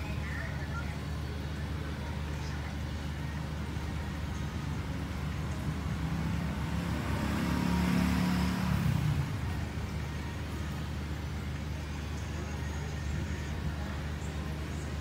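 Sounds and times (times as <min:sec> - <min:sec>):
vehicle passing by: 0:04.6 - 0:10.8.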